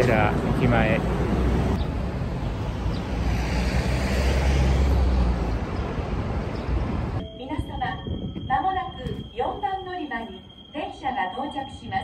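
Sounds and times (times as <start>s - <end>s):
vehicle rumble: 0.0s - 7.2s.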